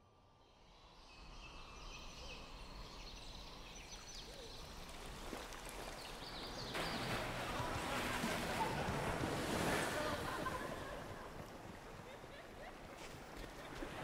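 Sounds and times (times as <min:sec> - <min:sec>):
birds chirping: 0:01.5 - 0:09.5.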